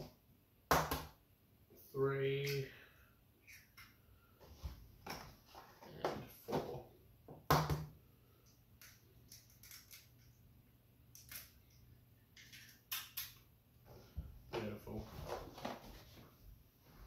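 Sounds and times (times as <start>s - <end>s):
eggshells breaking by hand: 8.8s - 10.3s.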